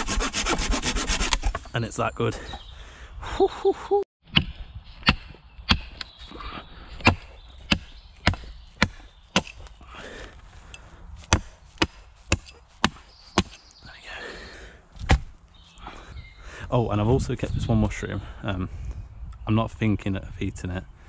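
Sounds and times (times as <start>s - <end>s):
hatchet chopping wood: 4.3s - 6.1s, 7.0s - 9.7s, 11.2s - 13.6s, 15.0s - 15.4s.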